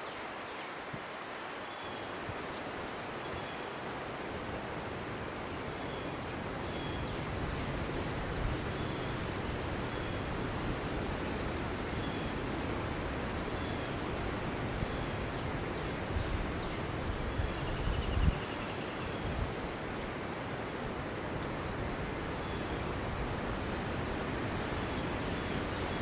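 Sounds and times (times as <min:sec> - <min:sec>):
outdoor background hiss: 0:00.0 - 0:26.0
low rumbling wind gusts: 0:06.3 - 0:26.0.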